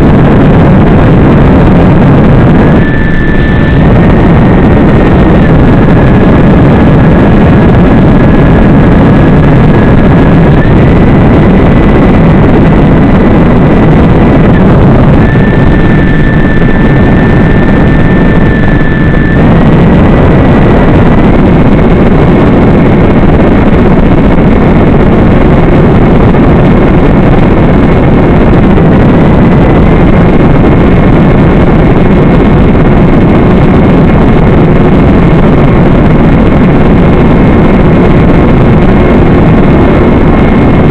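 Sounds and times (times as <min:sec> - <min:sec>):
drone motors buzzing: 0:00.0 - 0:29.8
thin whine: 0:00.0 - 0:40.9.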